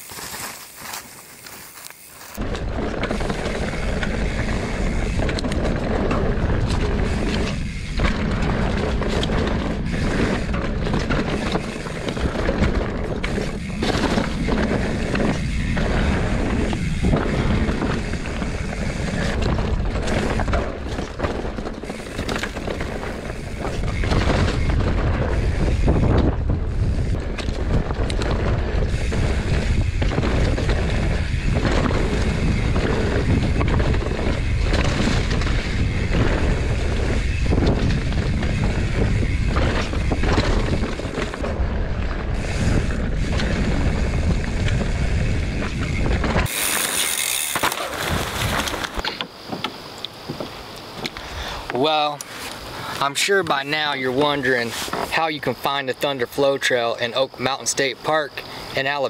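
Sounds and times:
bike rattling over bumps: 0.0s - 59.0s
bike tyre noise: 0.0s - 59.0s
wind buffeting microphone: 2.4s - 49.0s.

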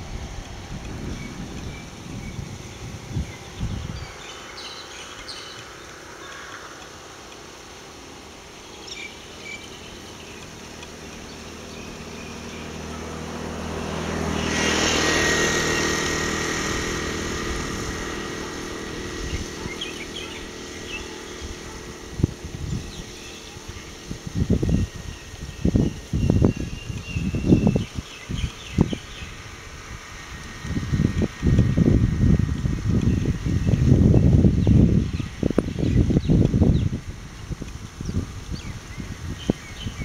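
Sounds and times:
wind buffeting microphone: 0.0s - 5.8s, 9.8s - 40.0s
birds chirping: 0.0s - 40.0s
vehicle engine passing by: 9.9s - 36.8s.

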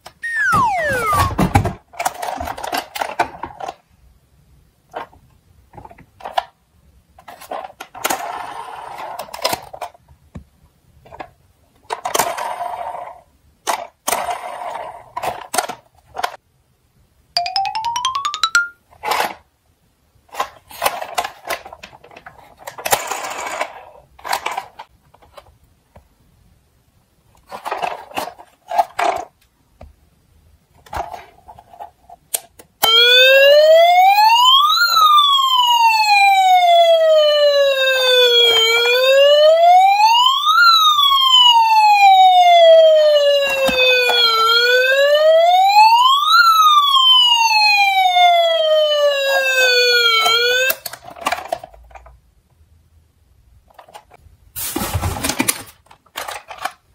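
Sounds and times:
toy fire truck siren wailing: 0.2s - 1.4s, 32.8s - 50.8s
plastic toy trucks clicking and rattling: 1.9s - 3.8s, 4.9s - 6.6s, 7.2s - 10.1s, 11.0s - 16.4s, 19.0s - 19.5s, 20.3s - 25.6s, 27.3s - 29.5s, 30.7s - 32.8s, 50.2s - 52.2s, 53.6s - 56.9s.

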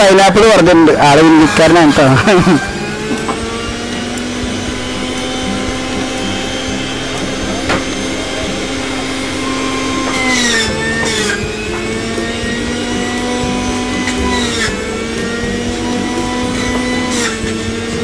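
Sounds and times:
juicer motor running: 1.4s - 18.0s
rough grinding noise: 2.9s - 14.9s.

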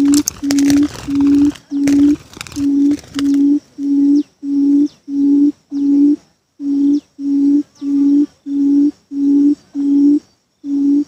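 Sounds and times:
small birds chirping: 0.0s - 11.0s
low booming bird hoots: 2.7s - 11.0s.

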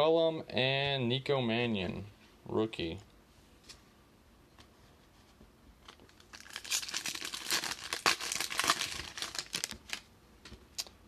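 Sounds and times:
foil wrapper crinkling and tearing: 5.9s - 10.1s.

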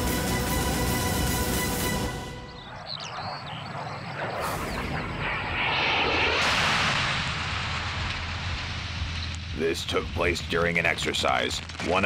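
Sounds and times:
rushing noise: 1.8s - 11.0s
loud explosion with deep rumble: 4.5s - 10.4s.

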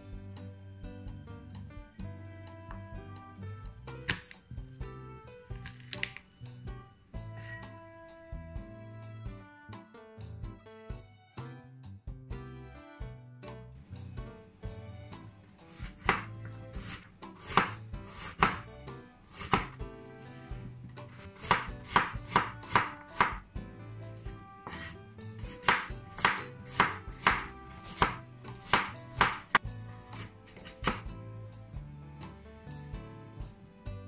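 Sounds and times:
knife chopping on wooden board: 4.0s - 4.4s, 5.6s - 6.2s, 15.7s - 18.7s, 19.3s - 19.8s, 21.1s - 23.4s, 24.6s - 31.1s.

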